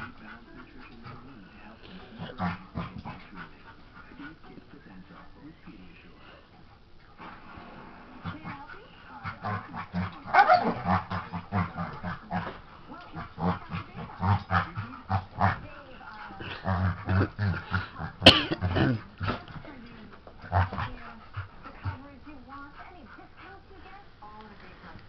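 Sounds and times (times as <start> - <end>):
dogs scuffling: 9.3 - 25.0.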